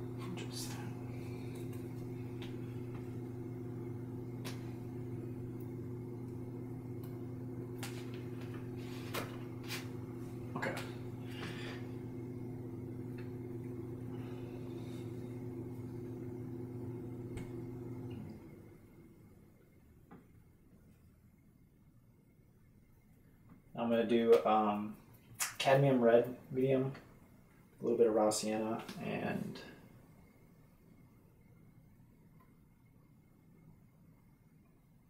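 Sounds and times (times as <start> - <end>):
low hum: 0.0 - 20.7.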